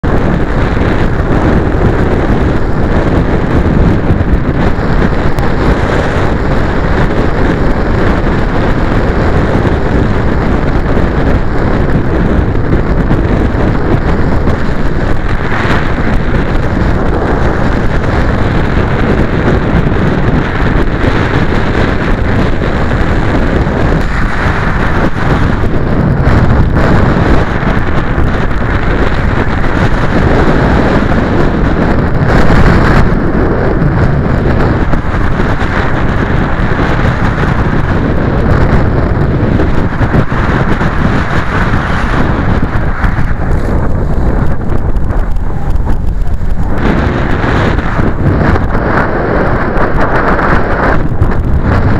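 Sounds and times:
strong wind on microphone: 0.0s - 51.9s.

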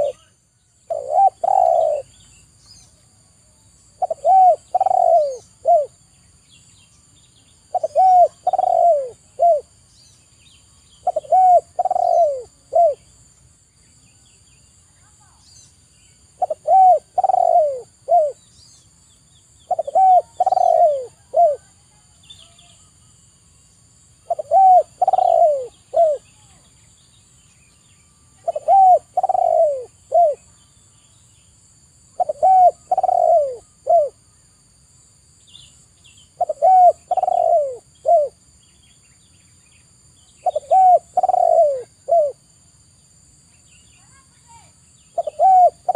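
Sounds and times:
dove cooing: 0.0s - 0.3s, 0.9s - 2.2s, 4.0s - 6.0s, 7.7s - 9.7s, 11.0s - 13.1s, 16.4s - 18.4s, 19.7s - 21.8s, 24.2s - 26.3s, 28.4s - 30.5s, 32.2s - 34.2s, 36.4s - 38.4s, 40.4s - 42.4s, 45.1s - 45.9s.

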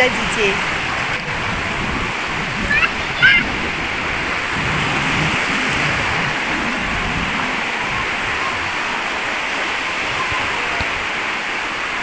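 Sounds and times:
small waves washing in shallows: 0.0s - 12.0s.

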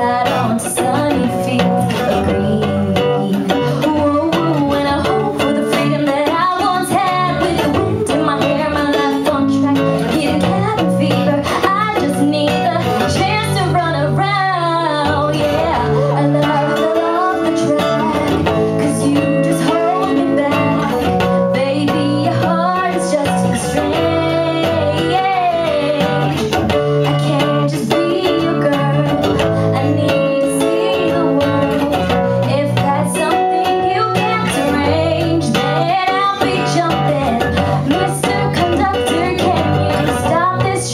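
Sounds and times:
acoustic guitar: 0.0s - 40.9s
woman singing into microphone: 0.0s - 40.9s.

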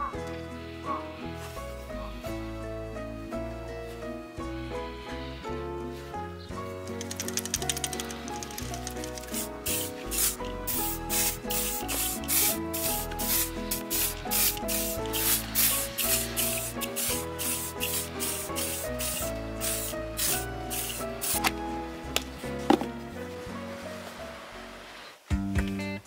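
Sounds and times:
background music: 0.0s - 26.0s
rubbing strokes on leather boot: 9.2s - 21.5s.

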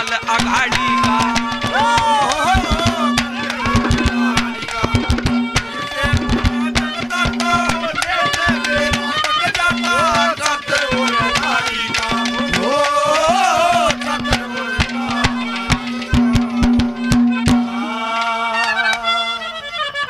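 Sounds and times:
rapid hand drum strokes: 0.0s - 17.9s
steady drone: 0.4s - 9.1s
wavering melody line: 0.4s - 9.2s, 13.4s - 17.5s.

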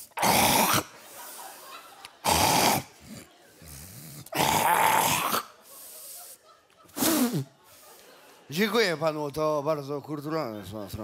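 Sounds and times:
man snoring loudly: 0.1s - 0.8s.

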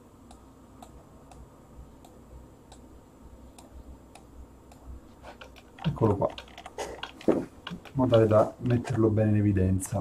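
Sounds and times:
low steady hum: 0.0s - 10.0s
computer mouse clicks: 2.0s - 2.9s, 3.6s - 9.0s.

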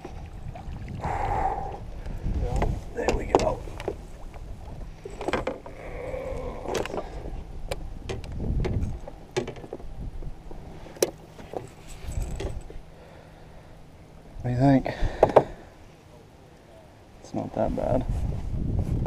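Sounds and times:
fishing gear clattering: 5.0s - 7.1s, 11.0s - 12.8s.

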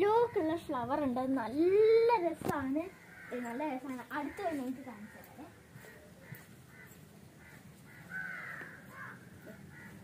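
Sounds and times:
crows cawing: 2.8s - 10.0s.

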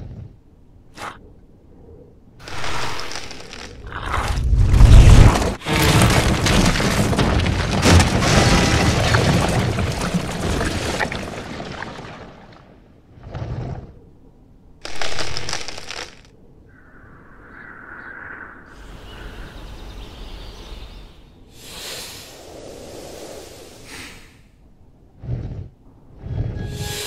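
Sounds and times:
rock breaking and crumbling: 2.4s - 12.8s, 14.8s - 16.3s
rushing noise: 26.6s - 27.0s.

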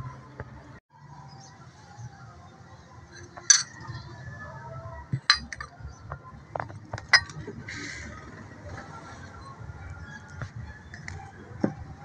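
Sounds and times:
dishes and glassware clinking: 3.2s - 4.0s, 5.2s - 5.8s, 6.6s - 7.5s.

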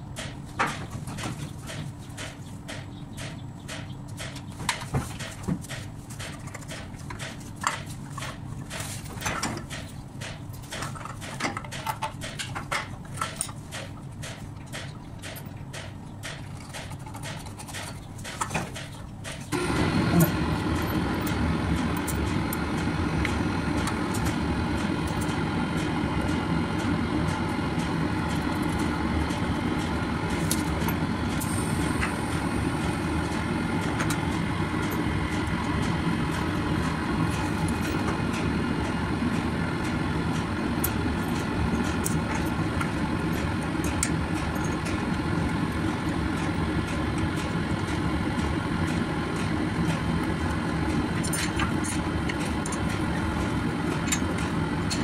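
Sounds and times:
machinery drone: 19.2s - 55.0s.

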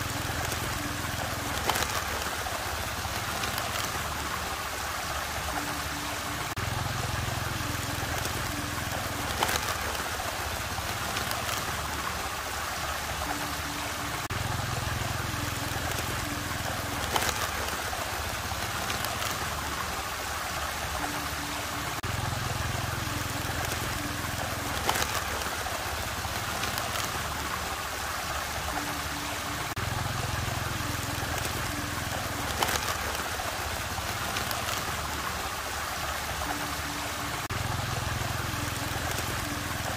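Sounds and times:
swirling water rushing: 0.0s - 39.9s.

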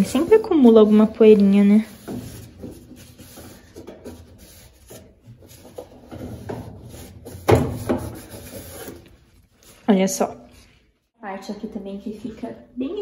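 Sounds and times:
paper towel scraping plastic rim: 0.0s - 10.0s.

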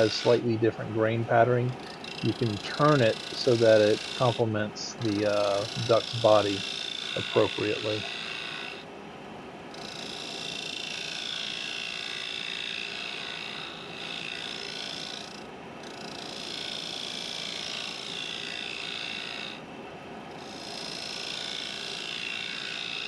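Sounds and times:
lathe tool scraping wood: 0.0s - 0.6s, 1.3s - 8.8s, 9.7s - 19.6s, 20.4s - 23.0s.

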